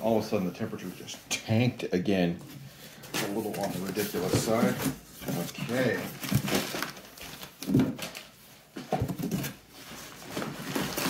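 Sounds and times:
box contents rustling and knocking: 3.1s - 11.0s.

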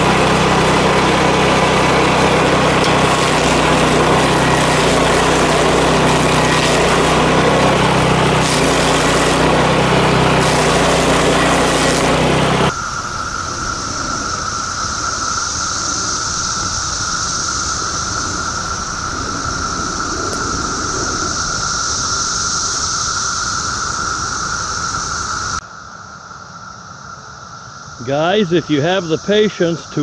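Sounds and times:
stump grinder engine running: 0.0s - 12.8s
cicadas droning: 0.0s - 30.0s.

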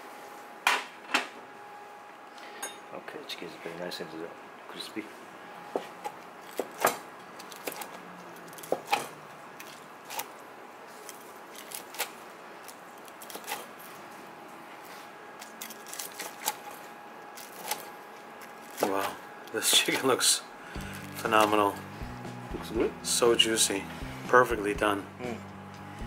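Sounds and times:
knife crunching crispy skin: 6.4s - 14.0s, 15.4s - 19.2s.

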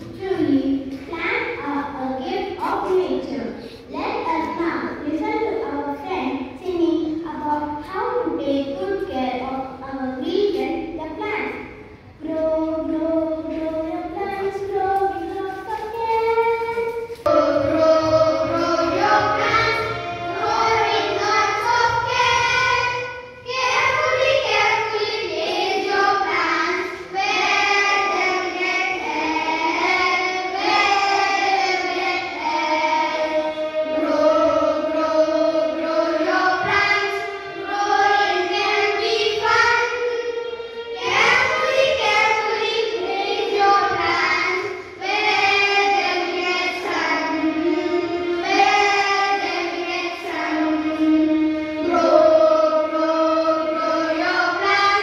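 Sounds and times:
children singing: 12.2s - 55.0s.

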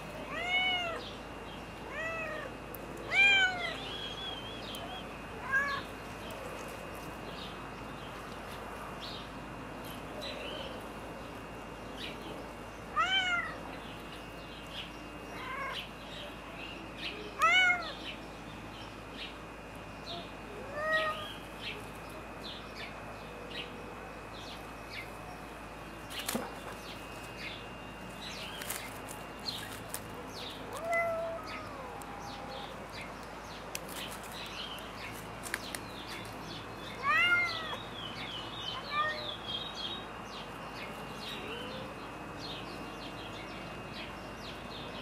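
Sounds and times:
cat meowing: 0.3s - 1.0s, 3.1s - 3.8s, 13.0s - 13.6s, 20.7s - 21.3s, 30.7s - 31.9s, 37.0s - 37.8s, 38.8s - 39.3s.

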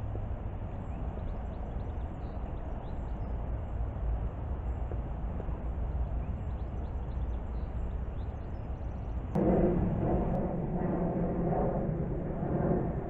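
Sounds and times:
steady low rumble: 8.5s - 13.0s.

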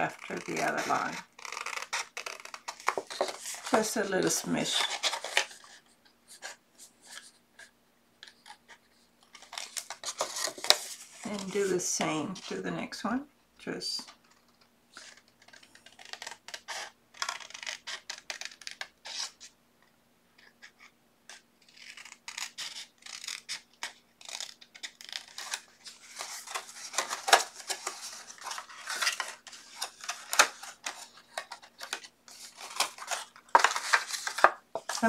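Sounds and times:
paper rustling: 0.0s - 12.6s, 21.6s - 35.0s.

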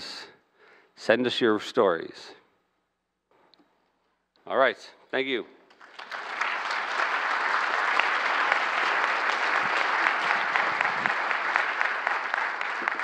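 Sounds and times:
audience applauding: 5.7s - 13.0s.

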